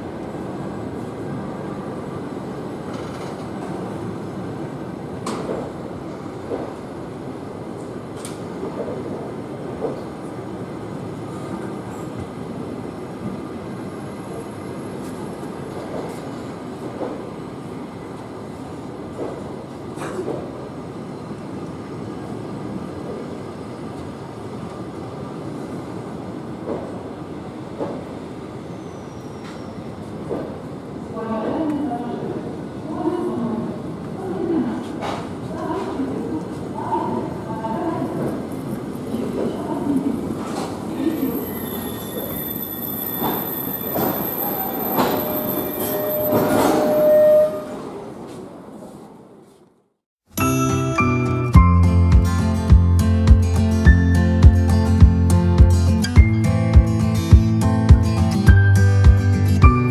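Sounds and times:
train wheels rumbling on rails: 0.0s - 32.4s, 34.0s - 49.0s.

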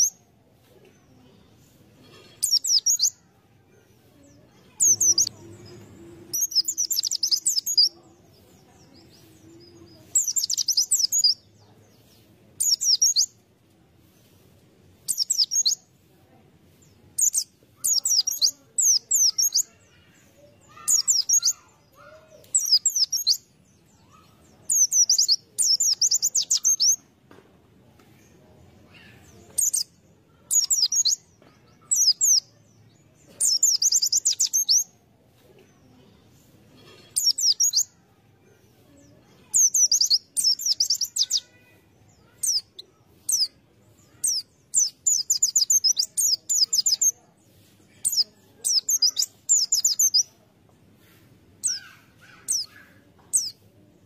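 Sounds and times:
bird twittering: 6.3s - 7.9s.

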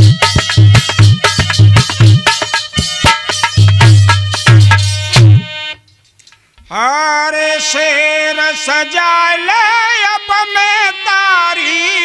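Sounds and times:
harmonium: 0.0s - 5.9s, 6.8s - 12.0s
man singing folk song: 6.6s - 12.0s.

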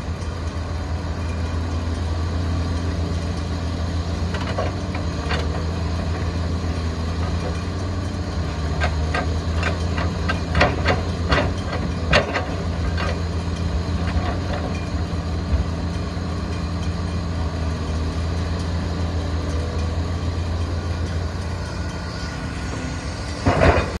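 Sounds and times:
excavator diesel engine running: 0.0s - 24.0s
loud clatter: 22.2s - 24.0s.

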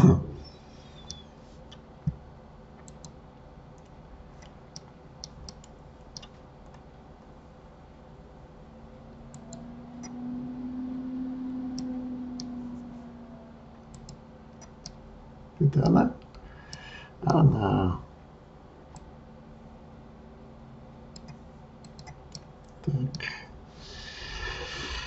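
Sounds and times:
low steady hum: 0.0s - 25.0s
computer mouse clicking: 1.0s - 2.2s, 2.8s - 3.2s, 3.8s - 6.8s, 9.3s - 10.2s, 13.9s - 15.0s, 21.1s - 22.8s.

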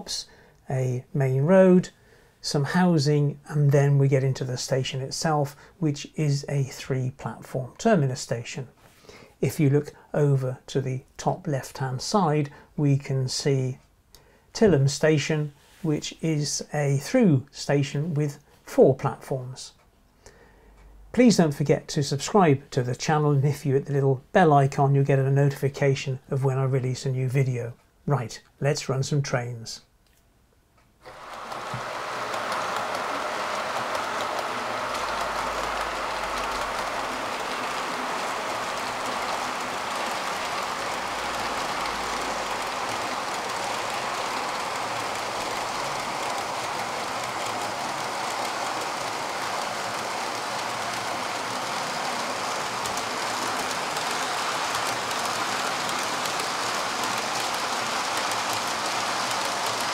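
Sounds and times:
model train wheels on rail: 0.0s - 13.9s, 31.0s - 59.9s.

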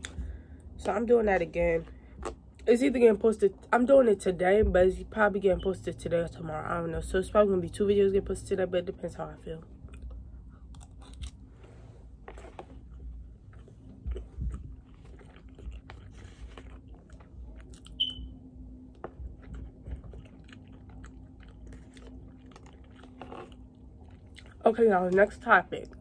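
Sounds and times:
person chewing food: 9.8s - 24.6s.

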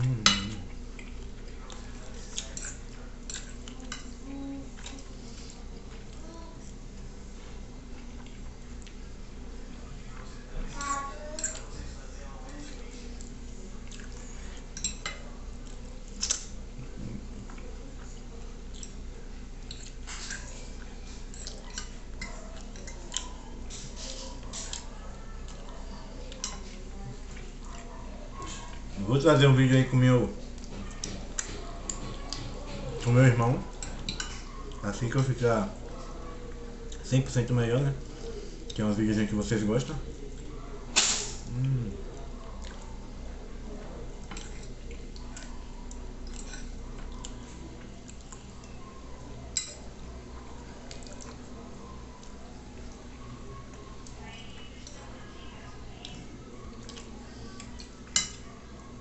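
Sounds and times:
chewing with wet mouth clicks: 0.0s - 4.1s, 8.0s - 9.1s, 12.5s - 16.6s, 17.5s - 28.8s, 40.3s - 43.0s, 44.2s - 49.9s, 50.7s - 55.2s, 55.9s - 58.9s
low steady hum: 0.0s - 59.0s
fork clinking on a plate: 0.2s - 0.6s
wet chewing and slurping: 13.2s - 14.8s.

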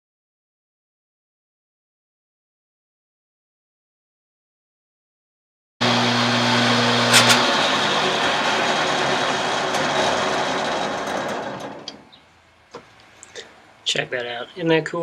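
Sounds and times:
saw blade whirring down: 5.8s - 12.0s
table saw running: 5.8s - 12.0s
sharp click: 7.1s - 7.4s.

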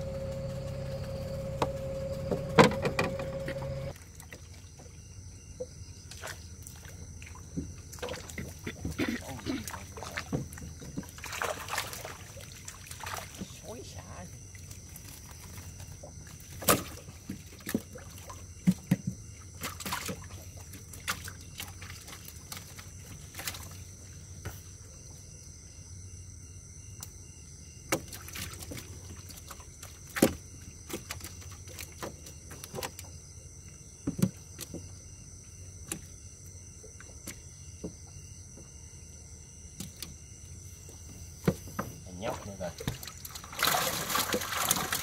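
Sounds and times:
steady low hum: 0.0s - 4.0s
water splashing: 6.1s - 18.5s, 42.1s - 45.0s.

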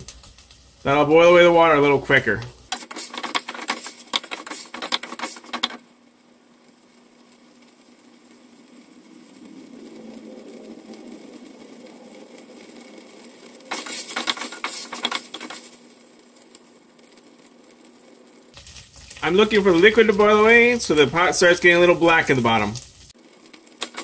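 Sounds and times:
faint sizzle: 0.0s - 24.0s.

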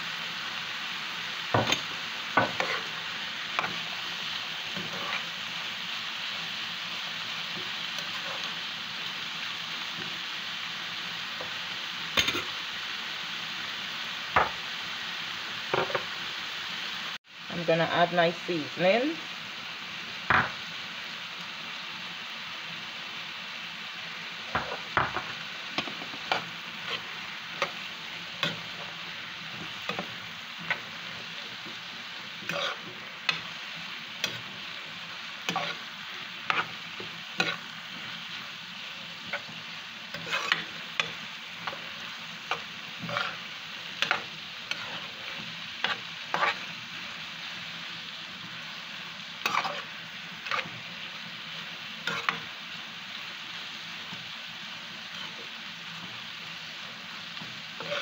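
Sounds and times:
vegetables sizzling in a frying pan: 0.0s - 58.0s
metal spoon scraping a pan: 1.6s - 3.9s, 4.7s - 5.4s, 7.6s - 8.6s, 24.6s - 38.4s, 39.2s - 46.7s, 49.4s - 50.8s, 52.0s - 52.5s, 57.8s - 58.0s.

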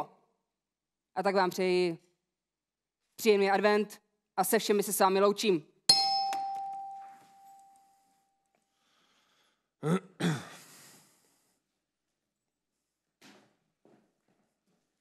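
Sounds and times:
man's short vocal sound: 9.8s - 10.6s.

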